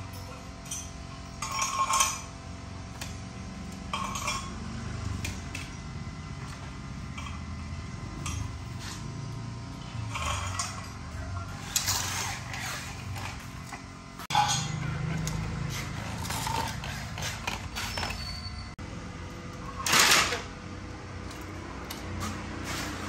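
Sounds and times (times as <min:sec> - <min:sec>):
metal window frame parts clinking: 0:14.3 - 0:15.4.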